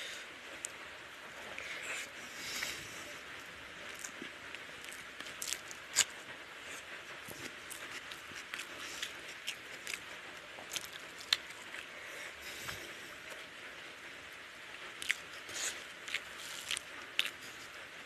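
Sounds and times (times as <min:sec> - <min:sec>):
fingers squishing rice: 0:01.5 - 0:13.0, 0:14.9 - 0:17.8.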